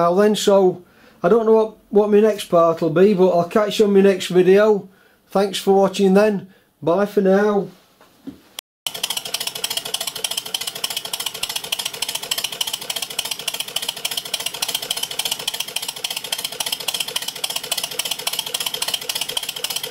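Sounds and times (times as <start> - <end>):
valve gear clatter: 8.9 - 19.9.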